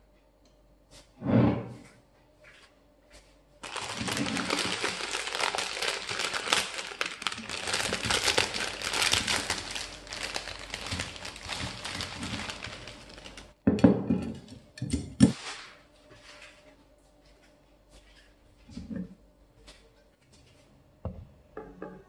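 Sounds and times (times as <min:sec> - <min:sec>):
plastic packet crinkling and rustling: 0:03.6 - 0:13.6.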